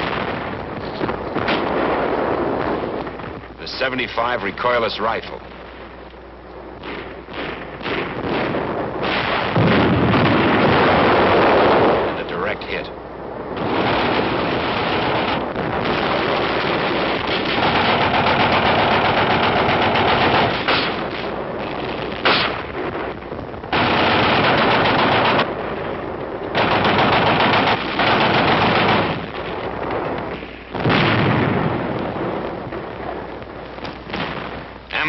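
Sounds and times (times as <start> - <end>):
explosion: 0.0 - 3.5, 6.8 - 12.4, 13.5 - 33.2
machine-gun fire: 6.8 - 12.3, 13.6 - 33.2, 33.8 - 35.0
single gunshot: 20.4 - 21.3, 22.2 - 22.7.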